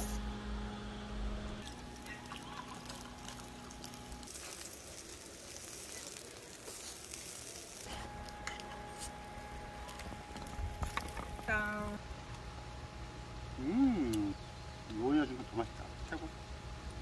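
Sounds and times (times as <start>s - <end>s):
liquid pouring into steel cup: 1.6s - 5.5s
meat sizzling on grill: 1.6s - 12.0s.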